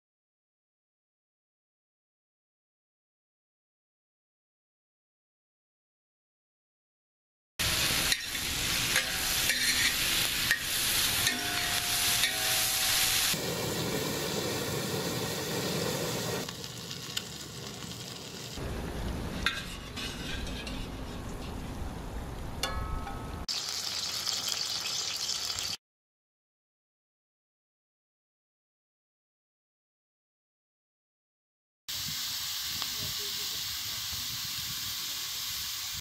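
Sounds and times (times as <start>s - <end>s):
food sizzling in a pan: 7.6s - 18.6s, 23.4s - 25.8s, 31.9s - 36.0s.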